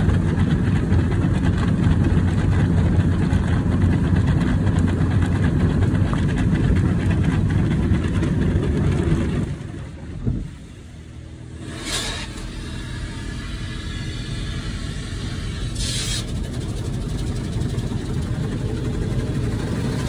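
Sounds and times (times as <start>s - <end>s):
car wash brushes rumbling: 0.0s - 20.0s
machinery hum: 0.0s - 20.0s
brief hiss: 11.6s - 12.7s.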